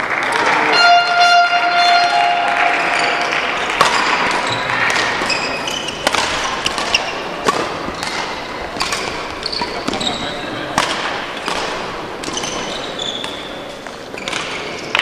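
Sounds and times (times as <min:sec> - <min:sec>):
sports hall background noise: 0:00.0 - 0:15.0
racket striking shuttlecock: 0:00.4 - 0:10.0, 0:10.7 - 0:15.0
shoe squeaks on court floor: 0:03.9 - 0:07.3, 0:09.3 - 0:10.4, 0:12.3 - 0:14.8.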